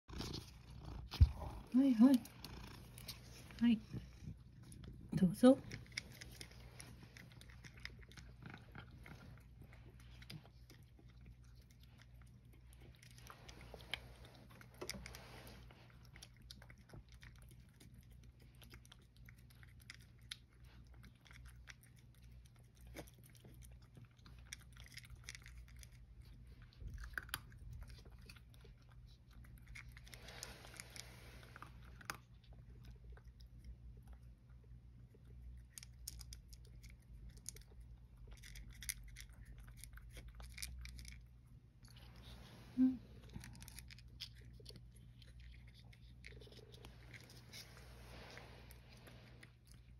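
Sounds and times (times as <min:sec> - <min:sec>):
cat chewing: 0:00.0 - 0:49.9.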